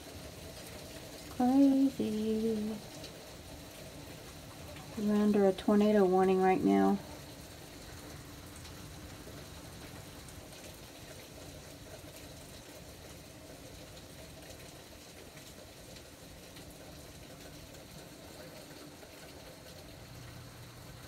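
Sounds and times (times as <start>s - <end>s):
heavy rain hissing: 0.0s - 21.0s
patter of raindrops: 0.0s - 21.0s.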